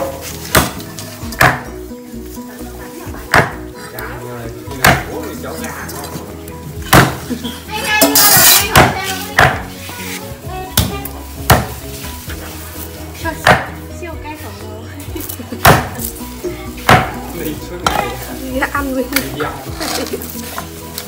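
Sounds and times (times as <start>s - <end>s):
background music: 0.0s - 21.0s
sharp knocks: 1.4s - 1.7s.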